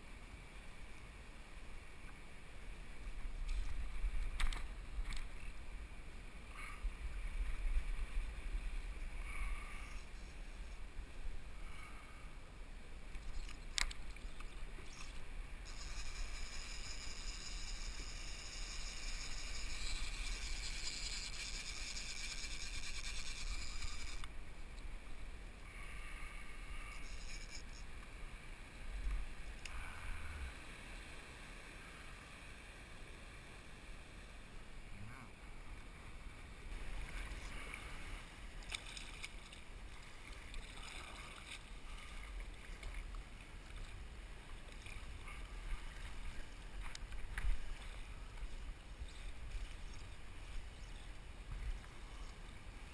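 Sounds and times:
water splashing against kayak hull: 0:36.8 - 0:48.6.

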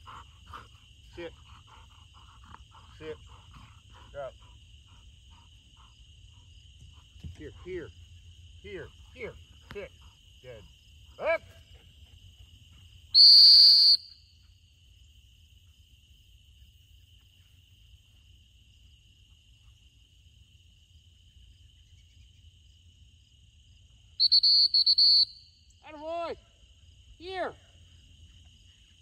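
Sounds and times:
crickets chirring: 0:00.0 - 0:29.0
dog whistle blasts: 0:13.1 - 0:14.2, 0:24.2 - 0:25.6.

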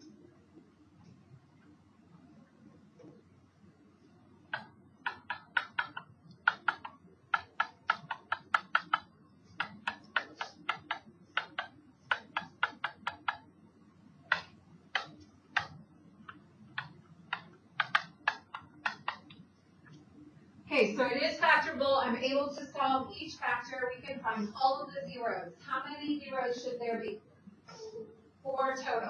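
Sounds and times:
stylus tapping on hard surface: 0:04.5 - 0:13.6, 0:14.2 - 0:20.0.

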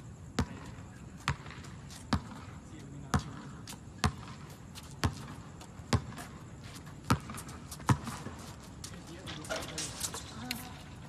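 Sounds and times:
basketball bouncing on hard court: 0:00.4 - 0:06.4, 0:07.0 - 0:09.0.

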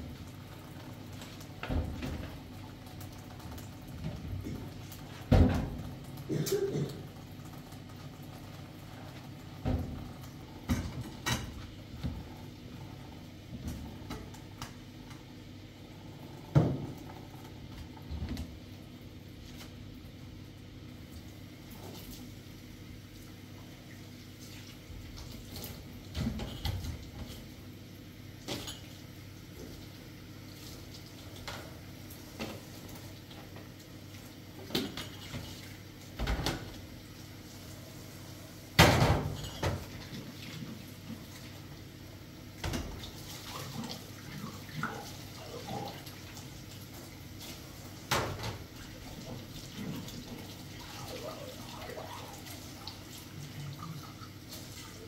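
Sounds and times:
water sounds: 0:42.6 - 0:55.0.

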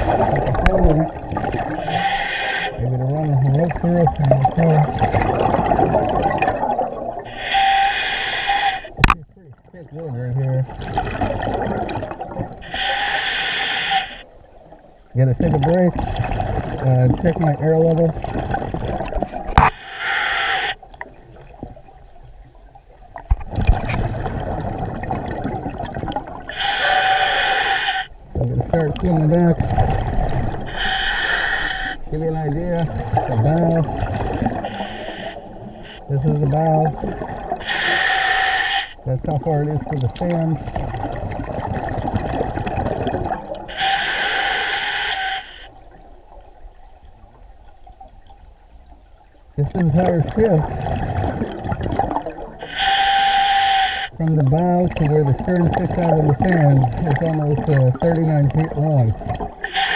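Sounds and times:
exhaled bubbles burbling: 0:00.0 - 0:02.1, 0:02.7 - 0:07.4, 0:08.9 - 0:12.8, 0:15.2 - 0:19.8, 0:23.1 - 0:26.6, 0:28.3 - 0:31.0, 0:31.9 - 0:37.8, 0:39.0 - 0:43.9, 0:49.6 - 0:52.9, 0:54.1 - 0:59.9
regulator hissing inhales: 0:12.6 - 0:14.3, 0:30.7 - 0:32.0, 0:34.6 - 0:36.0, 0:37.6 - 0:39.0, 0:43.7 - 0:45.7.

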